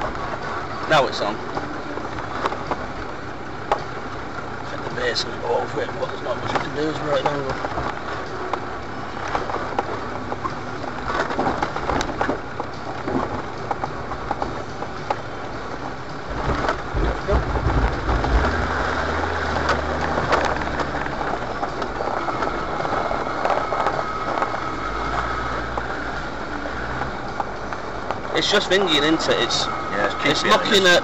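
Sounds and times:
engine low rumble: 0.0 - 31.0
tyres crunching over stones: 6.0 - 31.0
clicks and knocks through car body: 16.3 - 18.8.

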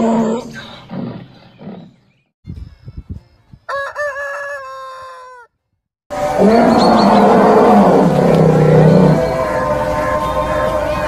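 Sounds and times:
rooster crowing: 3.7 - 5.5, 8.8 - 11.0
rough animal growl: 6.3 - 9.7.

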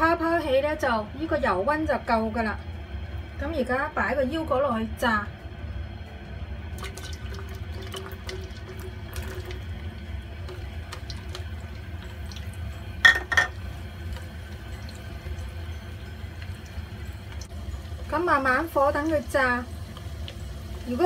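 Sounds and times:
nuts sizzling in oil: 7.6 - 21.0.

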